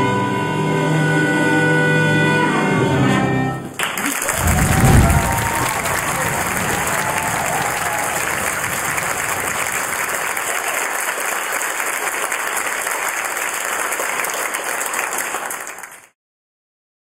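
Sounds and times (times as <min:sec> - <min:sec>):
audience applause: 0:03.8 - 0:16.2.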